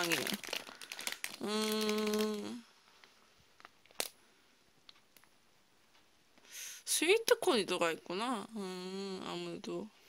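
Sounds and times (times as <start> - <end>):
plastic wrapper crackling: 0.0 - 4.2.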